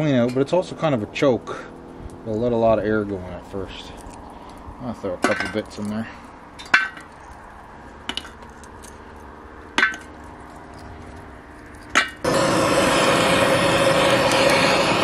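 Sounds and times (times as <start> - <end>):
gas torch hissing: 12.2 - 15.0.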